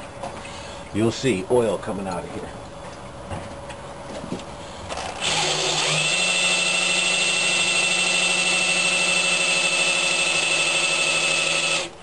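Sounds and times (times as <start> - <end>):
electric drill whining: 4.9 - 12.0.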